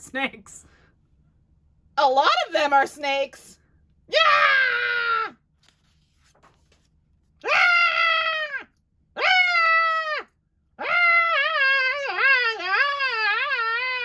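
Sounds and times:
person screaming: 4.1s - 5.4s, 7.4s - 14.0s.

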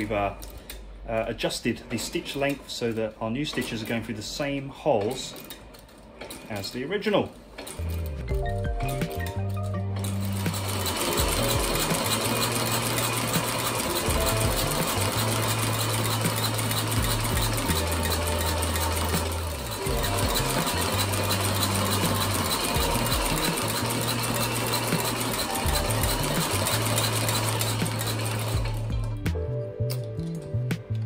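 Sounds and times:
sewing machine needle rattling: 8.8s - 28.9s.

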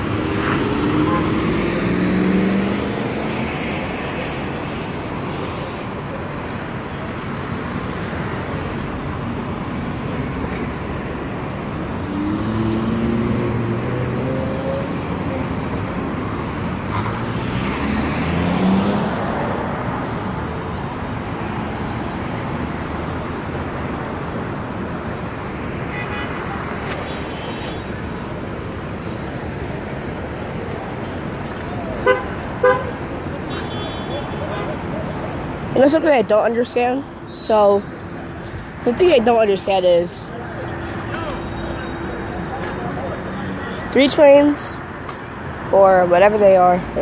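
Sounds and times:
vehicle engines accelerating past: 0.0s - 3.8s, 11.9s - 15.8s, 16.7s - 20.4s
steady road noise: 0.0s - 47.0s.

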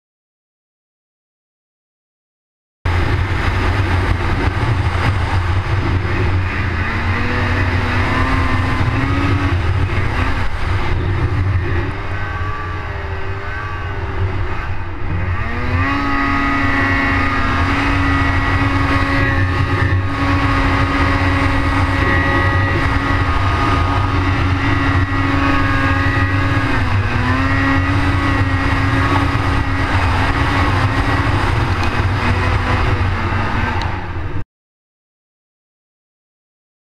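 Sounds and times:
snowmobile engine running hard: 2.9s - 34.4s.

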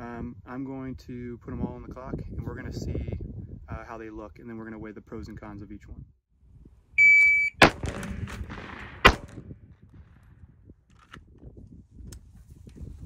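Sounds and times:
shot timer beep: 7.0s - 7.6s
carbine shot: 7.2s - 10.4s
pistol shot: 7.6s - 10.2s.

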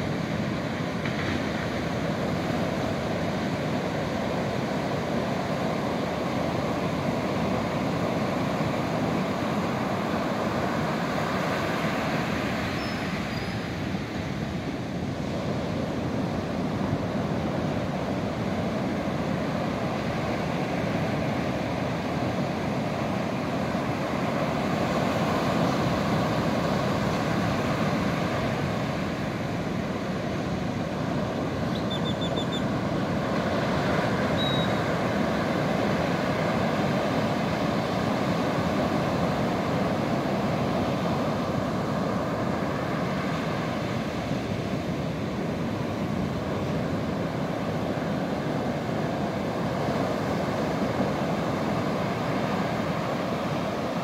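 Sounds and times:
waves breaking on a beach: 0.0s - 54.0s
faint high chirps: 31.7s - 32.6s, 34.4s - 34.8s.

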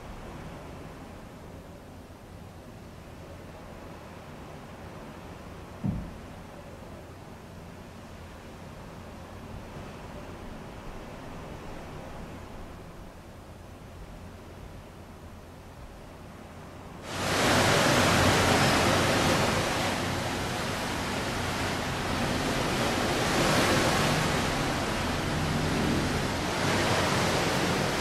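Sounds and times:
faint hiss: 0.0s - 28.0s
steady rushing noise: 16.9s - 28.0s.

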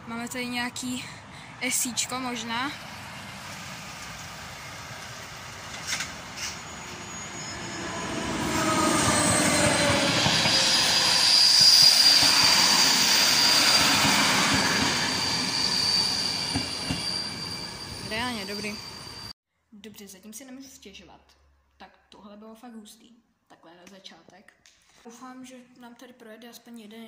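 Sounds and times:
train wheels rumbling on rail: 2.8s - 19.3s
high whine: 5.8s - 19.3s.

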